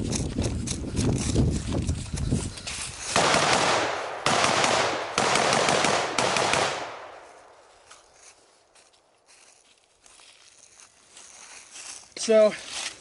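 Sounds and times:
rifle firing rapid shots: 3.2 - 7.2.

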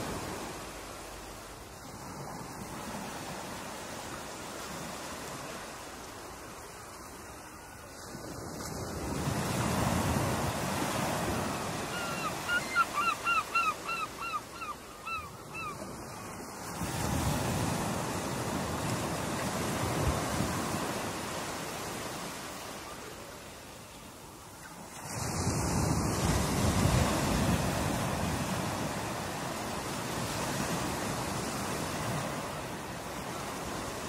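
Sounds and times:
ocean waves breaking: 0.0 - 34.0.

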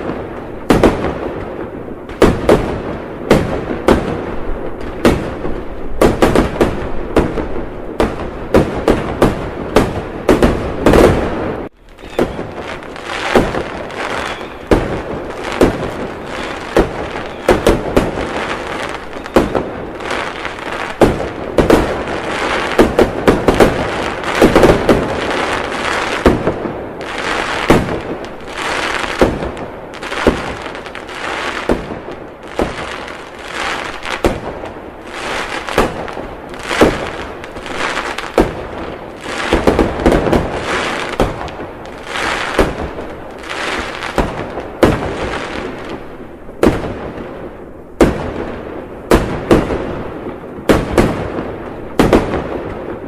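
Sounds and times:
firework shells bursting: 8.0 - 31.0.

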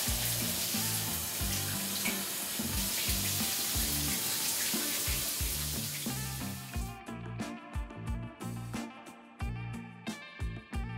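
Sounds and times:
shower water running: 0.0 - 6.9
background music with kick drum: 0.0 - 10.9.

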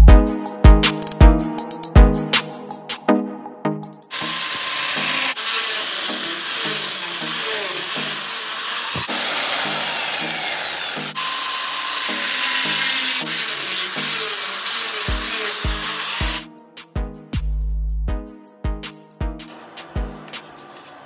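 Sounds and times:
background music: 0.0 - 21.0
handheld power tool running: 4.1 - 16.4.

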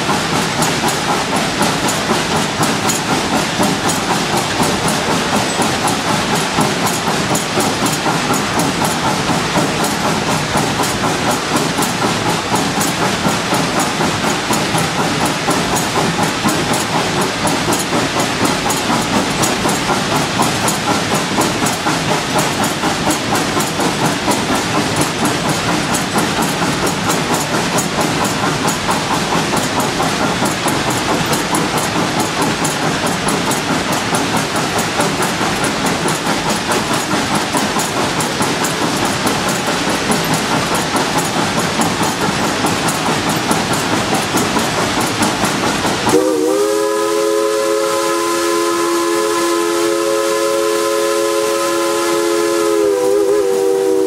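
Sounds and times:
steam locomotive clattering on rails: 0.0 - 54.0
steam whistle chord: 46.1 - 54.0.

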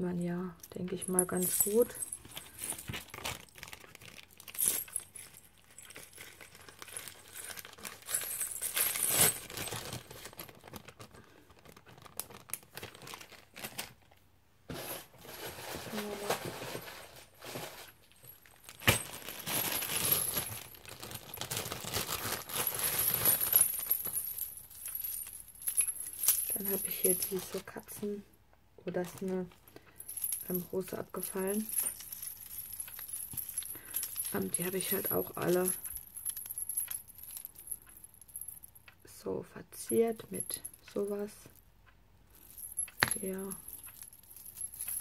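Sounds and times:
charms and bells jangling: 0.6 - 3.6, 4.4 - 9.9, 18.2 - 27.7, 29.9 - 38.8, 40.0 - 41.5, 42.3 - 45.0
rustling: 0.8 - 28.0, 29.0 - 38.8, 42.3 - 45.0.

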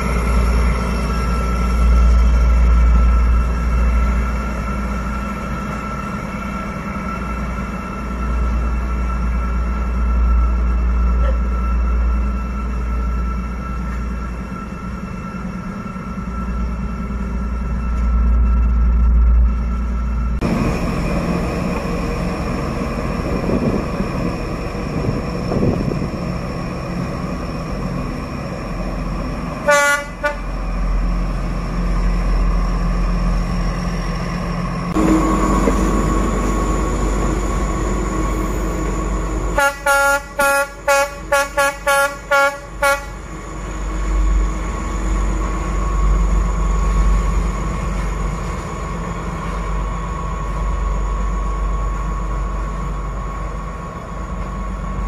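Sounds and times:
locomotive engine drone: 0.0 - 55.0
locomotive horn toot: 29.6 - 30.6, 39.5 - 43.2.

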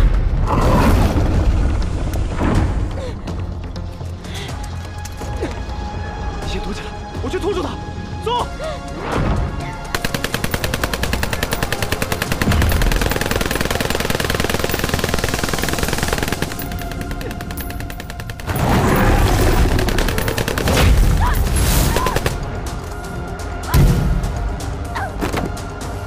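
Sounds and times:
film score music: 0.0 - 26.0
automatic gunfire: 9.9 - 21.0.

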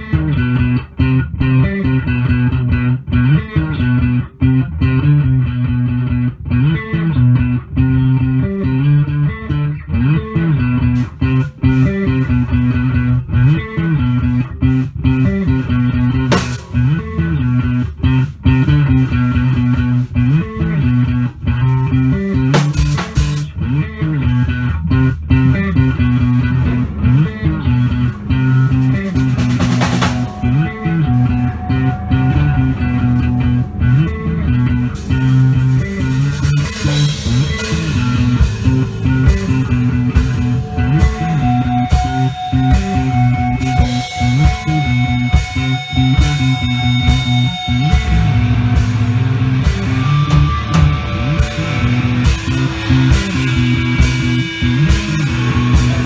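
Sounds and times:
electric bass line: 0.0 - 56.0
rock band playing live: 0.0 - 56.0
sustained electric guitar notes: 0.0 - 56.0
cymbals: 28.5 - 56.0.

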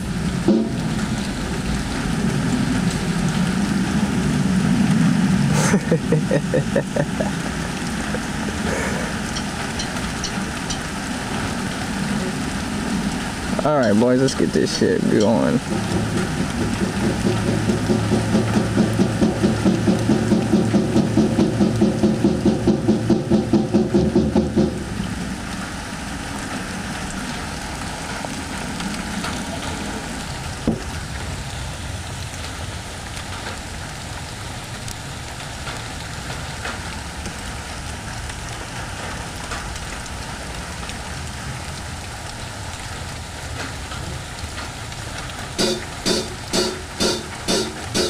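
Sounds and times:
drum kit hits: 0.5 - 0.8, 45.6 - 48.0
rhythmic pitched chugging of instruments: 15.1 - 24.1, 45.6 - 48.0
steady hiss: 45.4 - 48.0.

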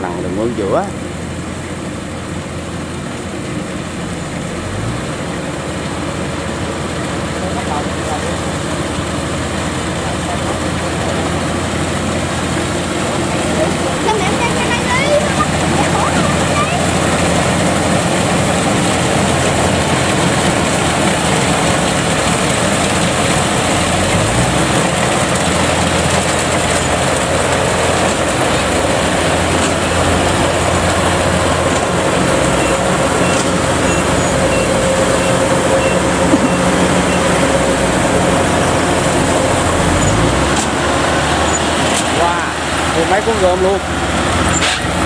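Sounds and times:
combine harvester engine drone: 0.0 - 45.0
threshing machinery clatter: 6.8 - 45.0.

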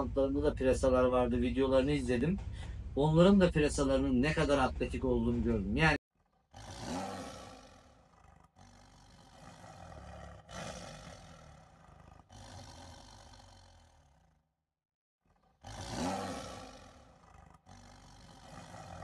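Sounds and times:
animal roaring: 6.5 - 14.4, 15.3 - 19.0.

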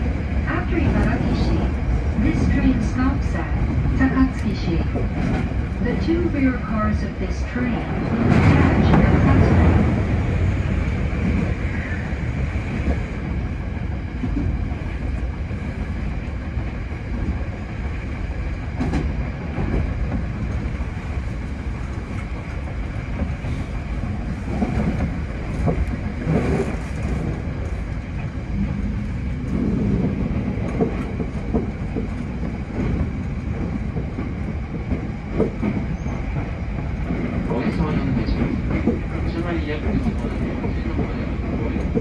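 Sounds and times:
train wheels rumbling on rail: 0.0 - 42.0.

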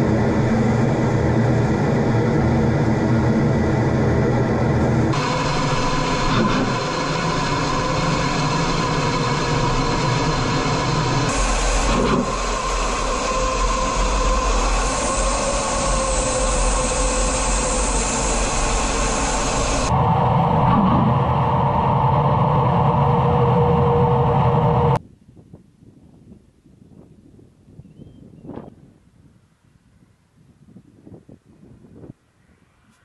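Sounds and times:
steady whine: 0.0 - 25.0
faint wind: 0.0 - 33.0
jet engine and airflow noise: 0.0 - 33.0.

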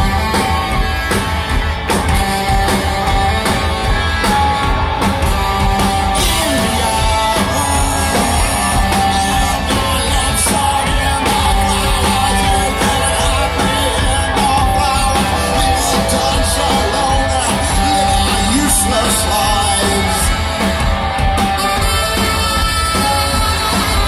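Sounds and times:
drums: 0.0 - 24.0
electric guitars: 0.0 - 24.0
lead vocal: 6.1 - 22.6.

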